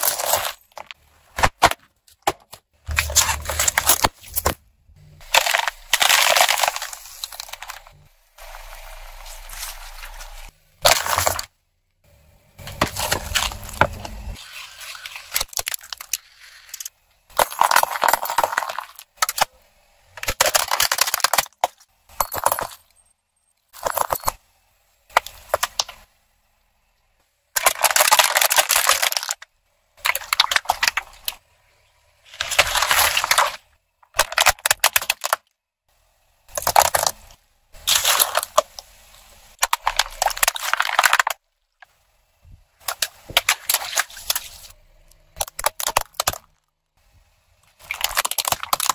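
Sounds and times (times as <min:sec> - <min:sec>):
tyre crushing cans and bags: 0:00.0 - 0:11.5, 0:12.6 - 0:22.9, 0:23.7 - 0:24.4, 0:27.6 - 0:29.4, 0:30.0 - 0:31.4, 0:32.2 - 0:35.5, 0:36.5 - 0:38.8, 0:39.5 - 0:41.8, 0:45.4 - 0:46.7, 0:47.8 - 0:48.9.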